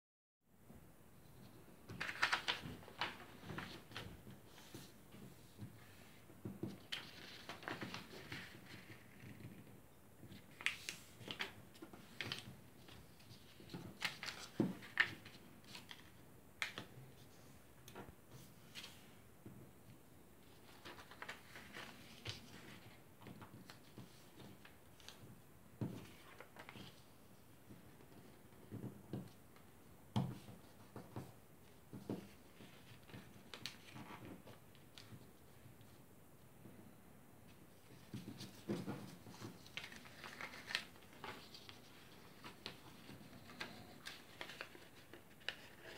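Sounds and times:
paper being folded: 2.0s - 4.9s, 6.9s - 9.4s, 10.5s - 16.8s, 20.6s - 23.0s, 37.9s - 45.9s.

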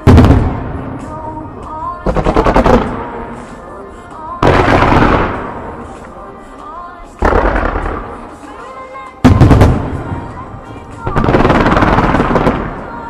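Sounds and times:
fireworks bangs: 0.0s - 1.1s, 2.0s - 3.4s, 4.4s - 5.9s, 7.2s - 8.6s, 9.2s - 13.0s
music: 0.0s - 13.0s.

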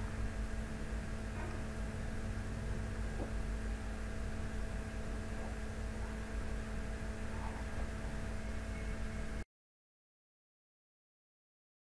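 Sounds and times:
electrical hum: 0.0s - 9.4s.

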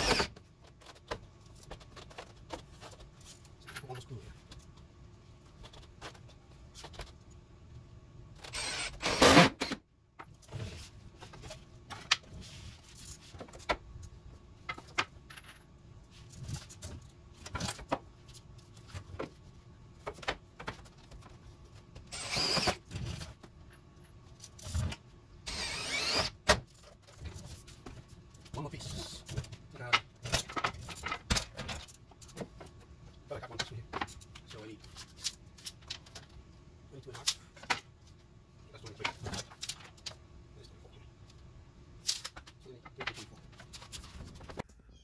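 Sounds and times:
cordless drill driving screws: 0.0s - 0.3s, 8.5s - 9.8s, 22.1s - 22.8s, 25.5s - 26.4s.

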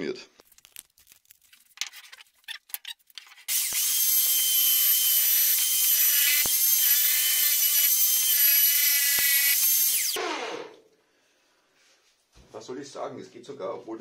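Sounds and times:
electric drill whining: 3.5s - 10.8s.

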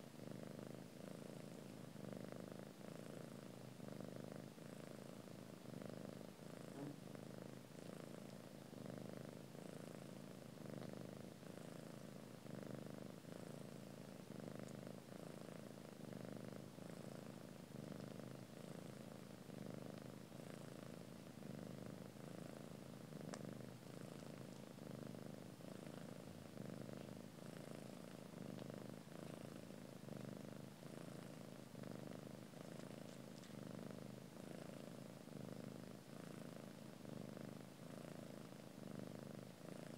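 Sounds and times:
cat purring: 0.0s - 39.9s.

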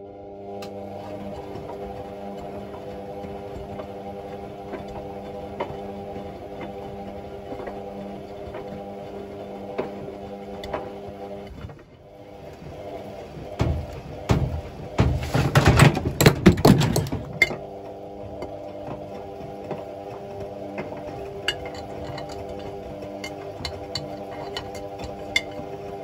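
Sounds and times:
washing machine hum: 0.0s - 26.0s
washing machine clunks and knocks: 13.4s - 17.8s.

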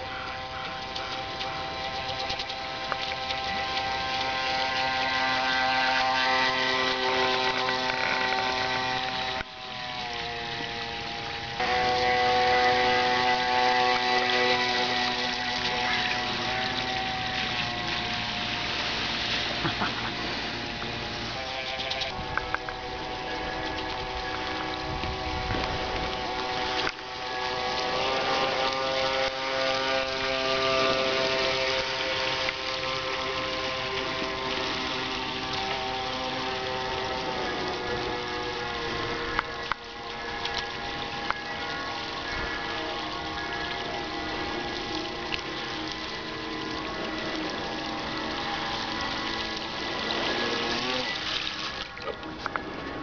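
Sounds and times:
electric motor whining: 0.0s - 53.0s.

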